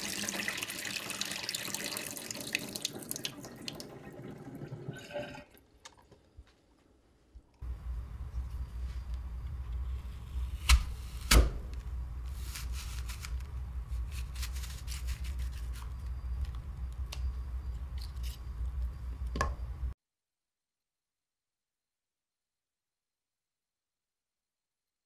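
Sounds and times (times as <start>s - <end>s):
steady low hum: 7.3s - 20.0s.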